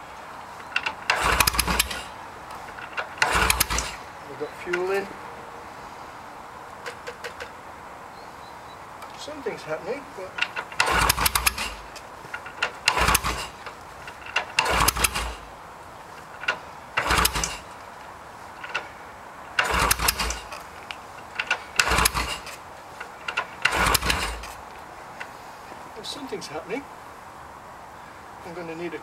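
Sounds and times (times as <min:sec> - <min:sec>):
motorcycle engine kick-started: 0:00.6 - 0:04.9, 0:10.3 - 0:15.5, 0:16.2 - 0:17.8, 0:18.6 - 0:19.0, 0:19.6 - 0:24.6.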